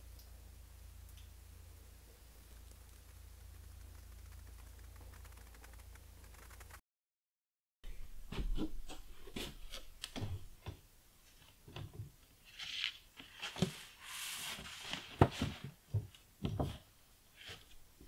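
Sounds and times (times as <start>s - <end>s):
paper sheet rustling: 12.4s - 15.8s.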